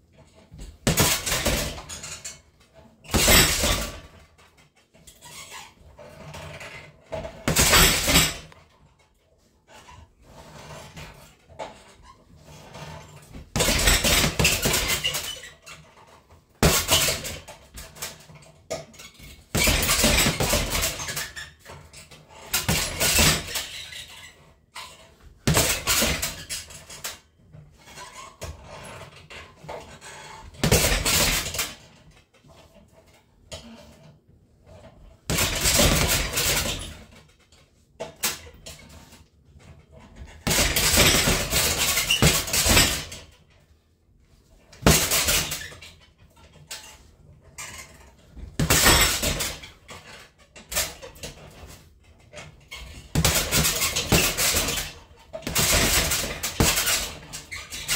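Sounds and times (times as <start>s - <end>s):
gloved punches on heavy bag: 0.6s - 2.0s, 3.1s - 4.1s, 7.2s - 8.5s, 13.4s - 15.3s, 16.6s - 18.0s, 19.5s - 21.3s, 22.5s - 23.6s, 25.4s - 26.4s, 30.6s - 31.8s, 35.3s - 37.0s, 40.4s - 43.2s, 44.8s - 45.6s, 48.5s - 49.6s, 53.1s - 57.9s
chain and metal stand rattling: 47.6s - 57.9s.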